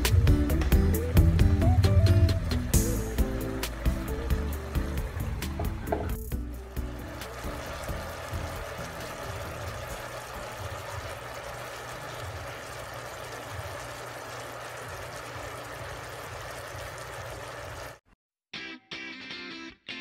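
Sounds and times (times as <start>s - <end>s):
sauce simmering in a pot: 2.8s - 18.0s.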